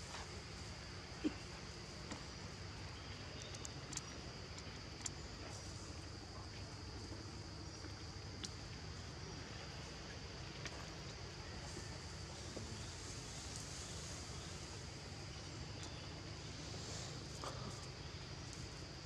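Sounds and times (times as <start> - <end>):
high insect drone: 0.0 - 19.0
faint clicks and ticks: 3.3 - 5.7.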